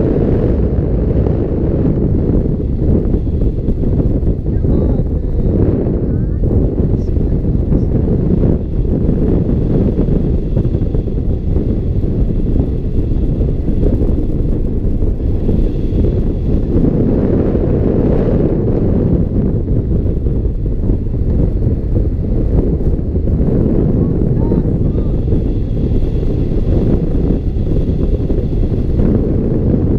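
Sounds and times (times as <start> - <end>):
wind rushing over microphone: 0.0 - 29.9.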